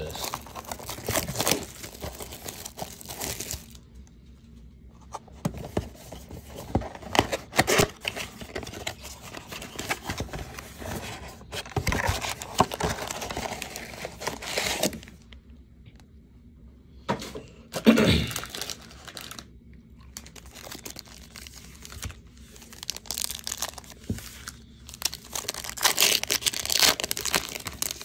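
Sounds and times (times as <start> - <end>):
cardboard rustling: 0.0 - 3.8, 4.9 - 15.2
plastic wrap crinkling: 0.0 - 4.0, 5.7 - 15.3, 18.3 - 28.0
cardboard flaps tearing: 25.0 - 28.0.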